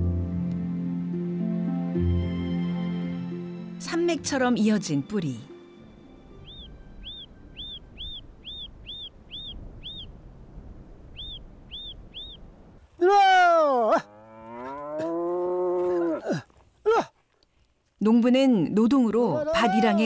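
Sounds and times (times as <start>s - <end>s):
small birds chirping: 6.3s - 10.2s, 11.0s - 12.6s
cow mooing: 14.0s - 16.2s.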